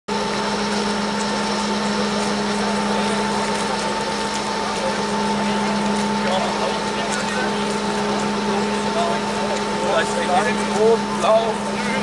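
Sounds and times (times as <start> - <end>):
diesel locomotive engine droning: 0.1 - 12.0.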